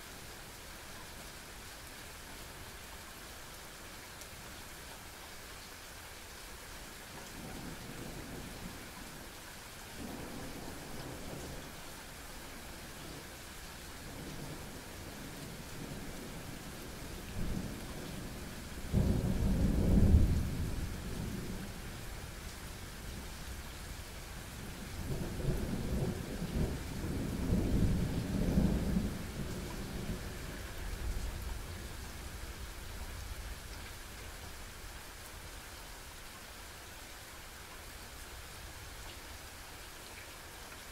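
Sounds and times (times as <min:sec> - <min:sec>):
steady rain hissing: 0:00.0 - 0:40.9
thunder rumbling: 0:25.0 - 0:31.2.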